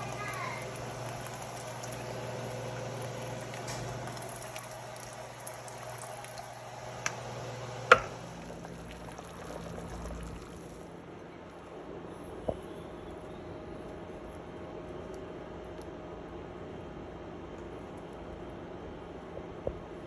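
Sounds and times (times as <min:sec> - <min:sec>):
low steady hum: 0:00.0 - 0:20.0
broth sloshing and bubbling: 0:00.1 - 0:07.1, 0:07.9 - 0:10.9.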